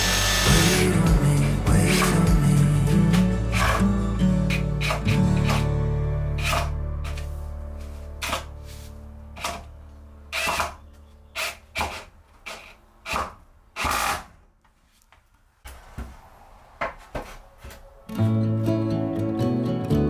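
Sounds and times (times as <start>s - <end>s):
song: 0.0s - 10.3s, 18.1s - 20.0s
short bursts of tool noise: 11.4s - 14.4s.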